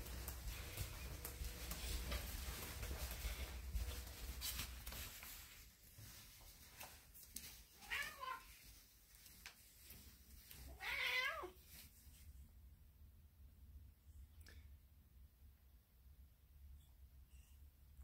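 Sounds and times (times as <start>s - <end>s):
faint rustling: 0.0s - 12.5s
cat meowing: 7.8s - 8.5s, 10.7s - 11.6s.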